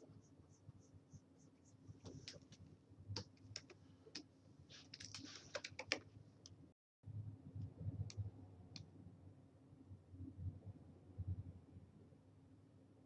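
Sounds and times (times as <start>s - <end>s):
stylus on drawing tablet: 0.0s - 13.0s
computer keys clicking: 4.9s - 6.0s.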